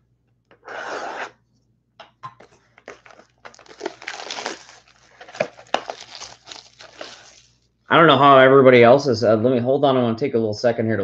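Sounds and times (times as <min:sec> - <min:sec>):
plastic shrink-wrap crinkling: 0:02.8 - 0:07.6.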